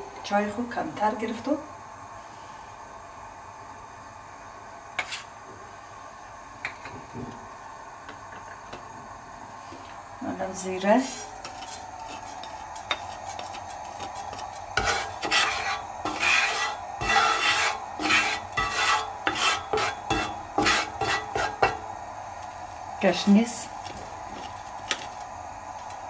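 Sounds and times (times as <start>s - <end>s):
wooden spatula scraping a pan: 5.0s - 5.3s, 11.0s - 21.8s.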